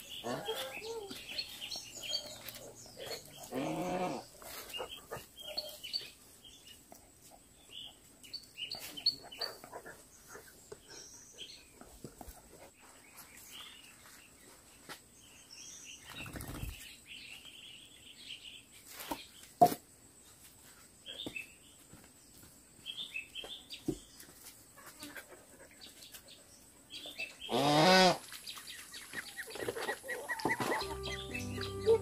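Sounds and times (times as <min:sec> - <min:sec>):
rustle: 0:00.0 - 0:09.2, 0:16.7 - 0:30.8
small birds chirping: 0:00.0 - 0:19.6, 0:20.7 - 0:32.0
fowl call with rising pitch: 0:30.6 - 0:32.0.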